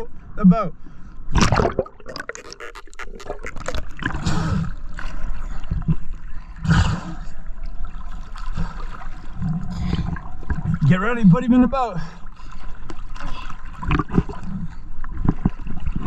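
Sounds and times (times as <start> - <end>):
bubbly underwater crackling: 1.3 - 11.0, 13.7 - 16.0
sea water splashing and gurgling: 1.3 - 16.0.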